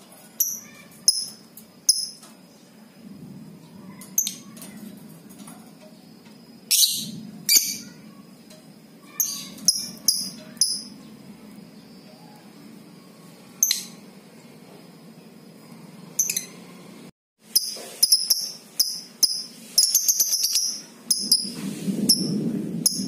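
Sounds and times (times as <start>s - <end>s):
bird chirping: 0.4s - 2.8s, 6.7s - 8.0s, 9.1s - 14.6s, 17.5s - 21.6s.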